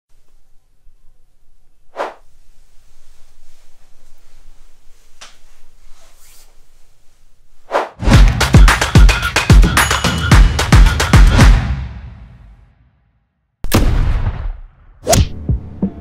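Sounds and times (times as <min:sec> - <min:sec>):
music with a heavy beat: 0:08.0 - 0:12.5.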